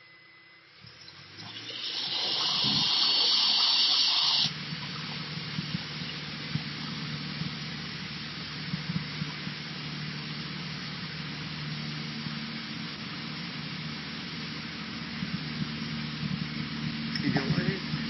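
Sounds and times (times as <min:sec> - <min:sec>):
airplane engine drone in cabin: 0:00.0 - 0:18.0
loud hiss: 0:01.4 - 0:04.6.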